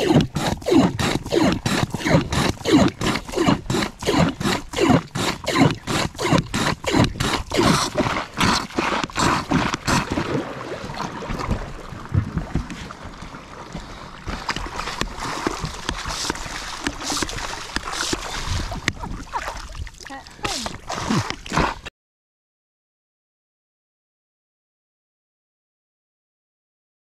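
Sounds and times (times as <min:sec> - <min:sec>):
hand bilge pump squirting water: 0:00.0 - 0:13.0, 0:13.8 - 0:21.9
splashing water: 0:00.0 - 0:21.9.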